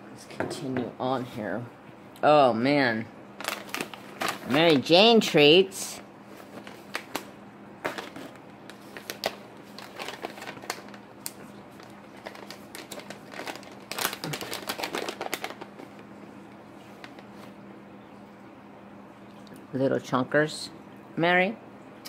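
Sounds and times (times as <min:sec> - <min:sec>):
faint steady hum: 0:00.0 - 0:22.0
plastic pouch crinkling: 0:03.4 - 0:05.0, 0:06.4 - 0:16.1, 0:16.9 - 0:17.5.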